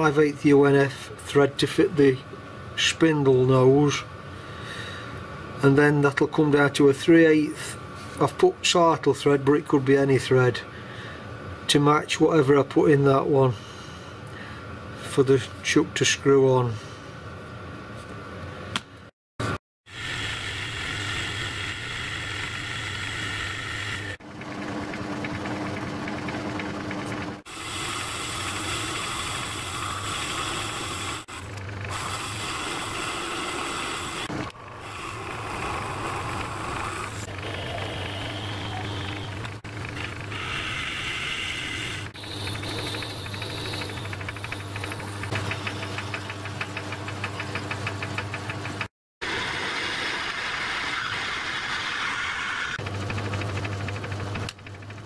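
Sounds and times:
lathe cutting steel: 0:20.0 - 0:24.2, 0:27.5 - 0:46.3
lathe motor hum: 0:20.0 - 0:50.6, 0:52.6 - 0:55.0.

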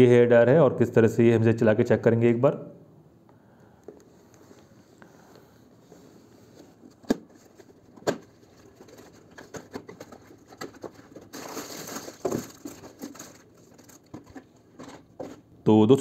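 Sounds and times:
scraping and rustling: 0:05.8 - 0:15.5
plastic wrap crinkling: 0:06.9 - 0:15.5
cardboard flap snapping: 0:08.0 - 0:12.7.

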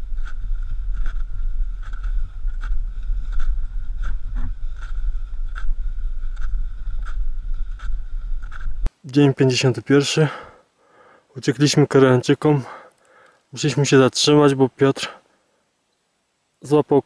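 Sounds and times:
wind buffeting microphone: 0:00.0 - 0:08.9.

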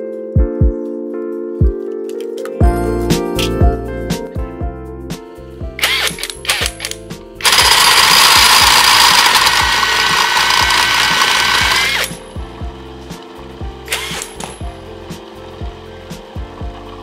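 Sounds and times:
background music with steady beat: 0:00.0 - 0:17.0
impact driver spinning: 0:05.8 - 0:12.2, 0:13.9 - 0:14.6.

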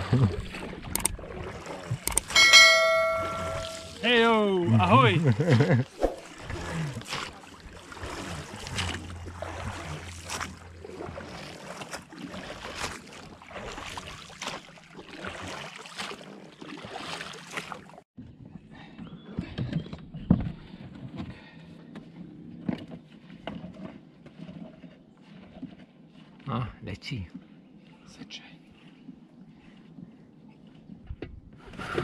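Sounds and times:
oars splashing in water: 0:00.0 - 0:04.1, 0:05.0 - 0:18.0, 0:22.0 - 0:26.4
knocks of handling outboard motor: 0:00.3 - 0:04.0, 0:06.2 - 0:15.7.

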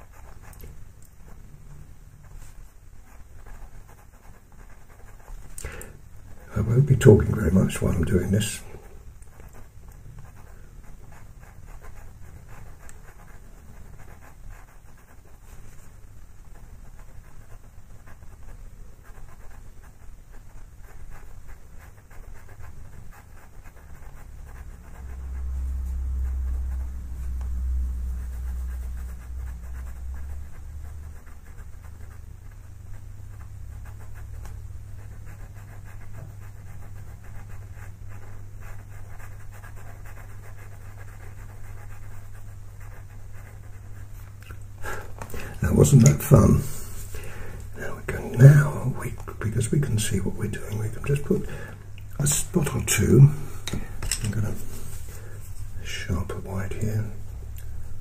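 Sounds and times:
pencil scratching on paper: 0:00.0 - 0:44.3, 0:45.1 - 0:51.6, 0:52.2 - 0:57.2
low steady hum: 0:00.0 - 0:58.0.

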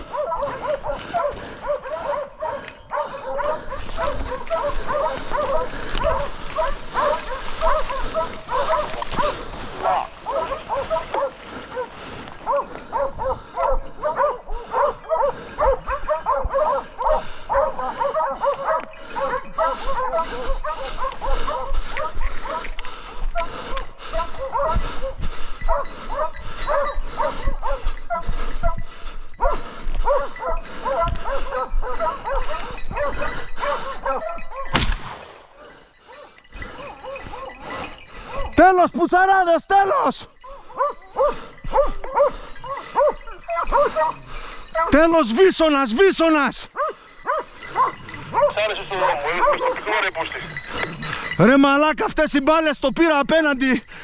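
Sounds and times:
hounds baying: 0:00.0 - 0:54.0
shotgun shot: 0:34.7 - 0:35.5.

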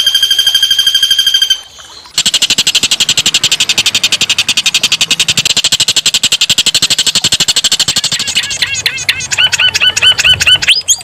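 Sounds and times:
songbird buzzy rattle: 0:00.0 - 0:08.6
songbird pulsing trill: 0:00.0 - 0:11.0.

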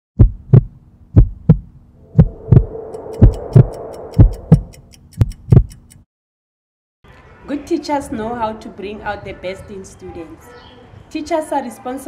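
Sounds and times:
deep double thumps: 0:00.2 - 0:05.7
humming pad: 0:02.0 - 0:05.0.

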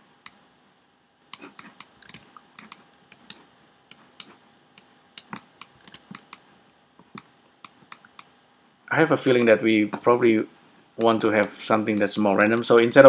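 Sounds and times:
keyboard and mouse clicking: 0:01.2 - 0:06.4.

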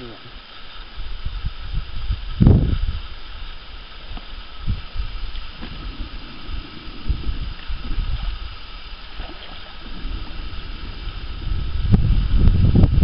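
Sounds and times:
faint outdoor hiss: 0:00.0 - 0:13.0
wind buffeting microphone: 0:00.9 - 0:13.0.

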